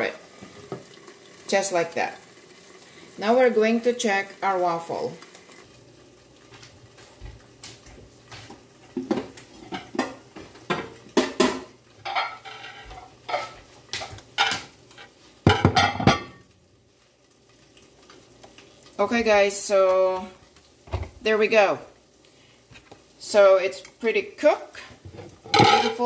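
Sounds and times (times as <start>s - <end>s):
dishes and utensils clinking: 9.0s - 16.4s, 25.2s - 26.0s
ceramic plates set down: 15.5s - 16.4s, 25.2s - 26.0s.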